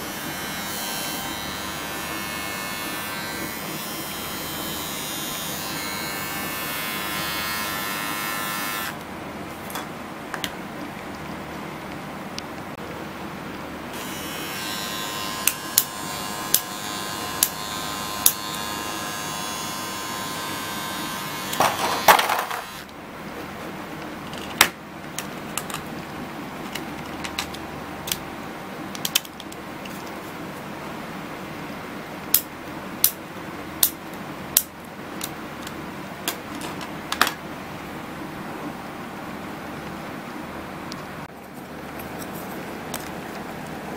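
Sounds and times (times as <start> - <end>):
electric beard trimmer buzzing: 0.0 - 9.0, 13.9 - 22.9.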